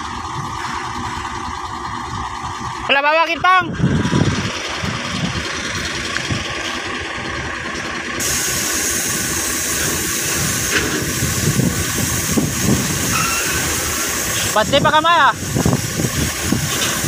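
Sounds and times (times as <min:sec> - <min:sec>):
diesel truck engine idling: 0:00.0 - 0:17.0
hiss: 0:08.2 - 0:17.0.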